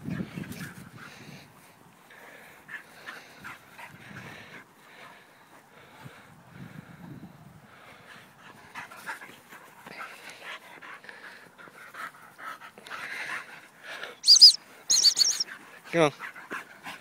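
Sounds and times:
dog panting: 7.8s - 17.0s.

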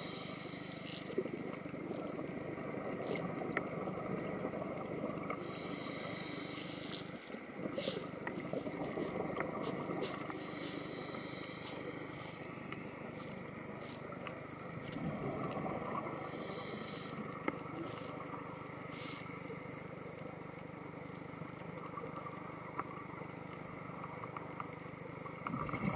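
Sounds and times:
scuba regulator breathing: 0.0s - 1.1s, 5.3s - 8.2s, 9.7s - 12.6s, 16.2s - 18.1s, 18.7s - 19.9s
muffled underwater hum: 0.0s - 25.9s
faint clicks: 0.6s - 16.2s, 17.2s - 25.9s
bubbling exhale: 25.4s - 25.9s.

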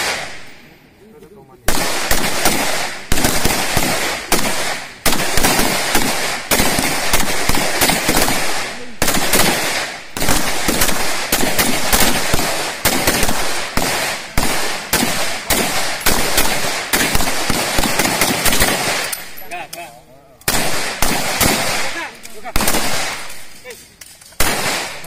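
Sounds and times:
assault rifle gunshots: 0.0s - 0.5s, 1.7s - 19.4s, 20.5s - 23.6s, 24.4s - 25.0s.

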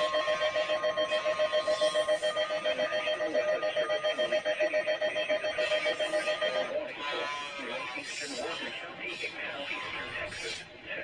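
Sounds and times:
faint high steady tone: 0.0s - 6.8s
rapid alarm beeping: 0.0s - 6.8s.

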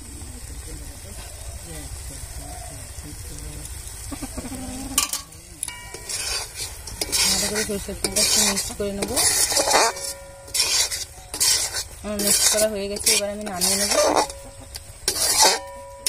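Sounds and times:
light sizzle in pan: 0.0s - 16.0s
metal spatula scraping a pan: 4.8s - 16.0s
metal on metal squeak: 5.9s - 16.0s.

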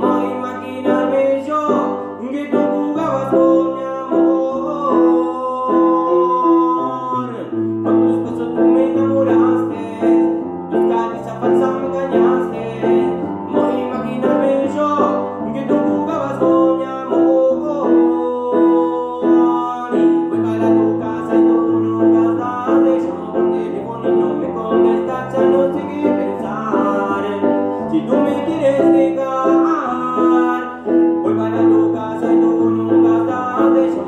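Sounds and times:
electronic keyboard piano: 0.0s - 34.0s.

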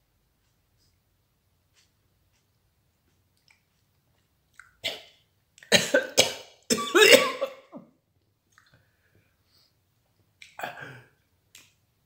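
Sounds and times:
man coughing: 5.7s - 7.8s.

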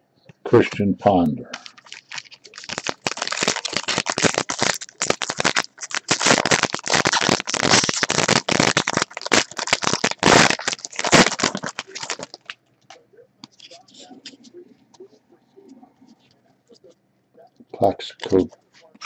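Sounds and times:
foil wrapper crinkling and tearing: 1.6s - 12.6s.

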